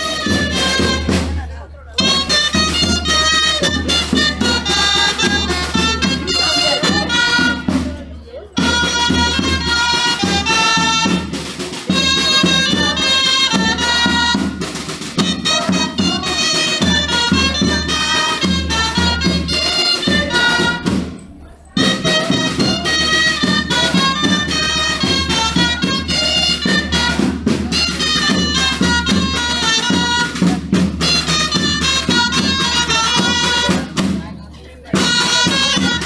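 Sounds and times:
snare drum beat: 0.0s - 1.4s, 2.0s - 21.2s, 21.8s - 34.2s, 34.9s - 36.0s
reed pipe folk melody: 0.0s - 36.0s.

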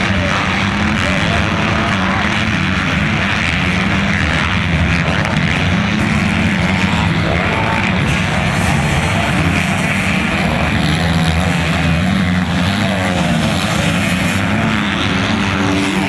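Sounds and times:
motocross bike engines racing: 0.0s - 16.0s.

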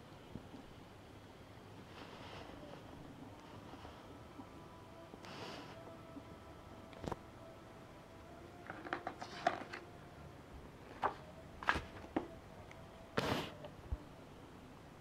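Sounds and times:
paper crackling and rustling: 8.6s - 10.0s, 10.8s - 12.4s.

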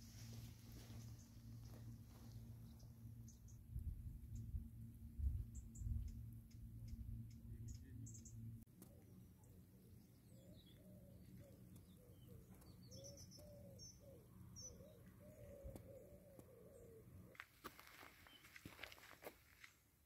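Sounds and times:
small birds chirping: 0.1s - 4.6s, 5.4s - 19.2s
pigeon cooing: 13.0s - 17.1s.

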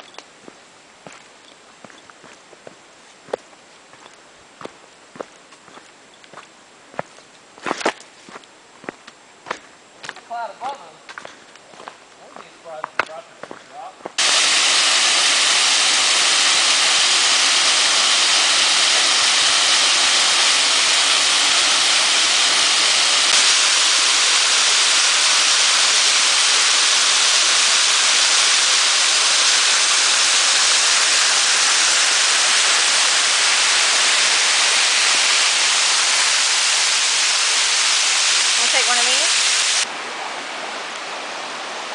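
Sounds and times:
waterfall rushing onto boulders: 14.2s - 41.9s.

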